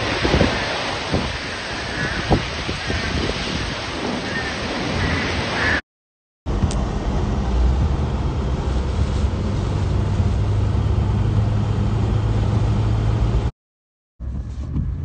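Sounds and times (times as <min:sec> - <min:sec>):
storm rain: 0:00.0 - 0:05.8, 0:06.5 - 0:13.5
wind: 0:00.0 - 0:05.8, 0:06.5 - 0:13.5, 0:14.2 - 0:15.0
vehicle motor rumbling from inside: 0:06.5 - 0:13.5, 0:14.2 - 0:15.0.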